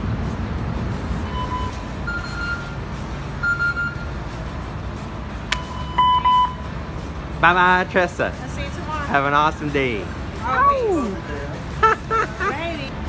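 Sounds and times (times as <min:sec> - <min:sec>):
steady low rumble: 0:00.0 - 0:13.0
short electronic beeps: 0:01.3 - 0:02.8, 0:03.4 - 0:04.2, 0:05.6 - 0:06.7.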